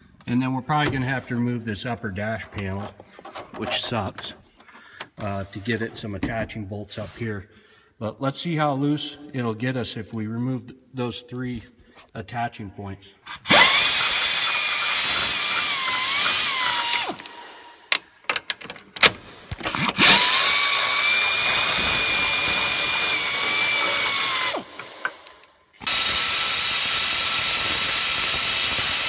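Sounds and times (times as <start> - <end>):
air ratchet whining: 13.3 - 18.0, 19.6 - 29.0.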